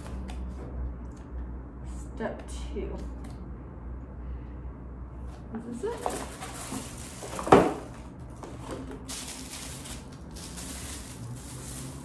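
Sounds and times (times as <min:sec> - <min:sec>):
plastic packaging crinkling: 0:05.9 - 0:12.0.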